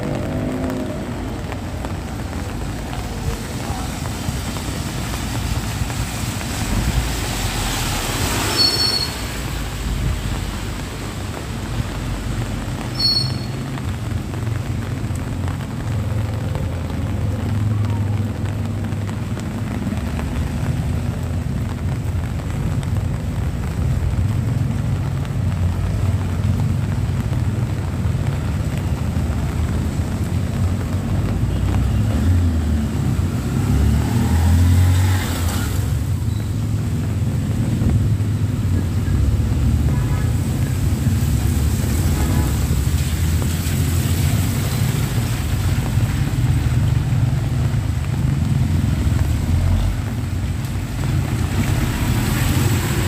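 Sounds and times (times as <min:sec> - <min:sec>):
car tyres hissing on wet asphalt: 0:00.0 - 0:53.0
low rumble of street noise: 0:00.0 - 0:53.0.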